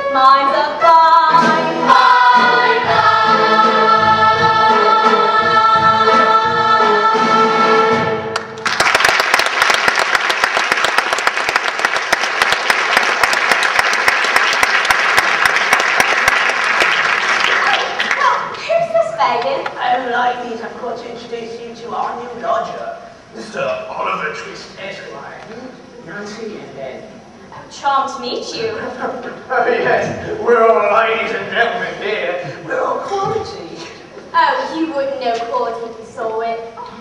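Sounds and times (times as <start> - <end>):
chorus singing with orchestra: 0.1 - 8.4
audience applause: 8.4 - 18.5.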